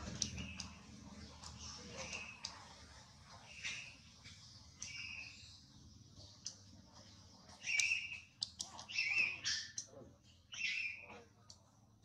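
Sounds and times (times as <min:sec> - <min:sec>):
baby monkey squeaking: 0:07.6 - 0:09.8, 0:10.5 - 0:11.1.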